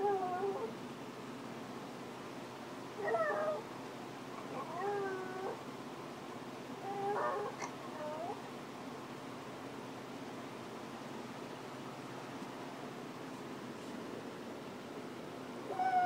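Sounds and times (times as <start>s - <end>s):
dog howling: 0.0s - 0.7s, 3.0s - 3.6s, 4.5s - 5.6s, 6.8s - 8.4s, 15.7s - 16.0s.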